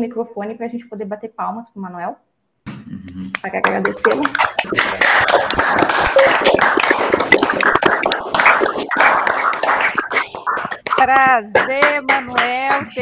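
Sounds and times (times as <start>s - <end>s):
people clapping: 3.1s - 13.0s.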